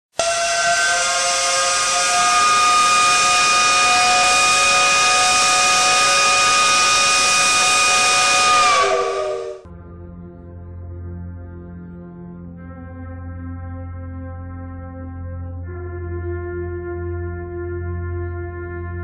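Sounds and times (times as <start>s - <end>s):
electronic drone chord: 0.2s - 9.7s
loud bright hiss: 0.4s - 9.6s.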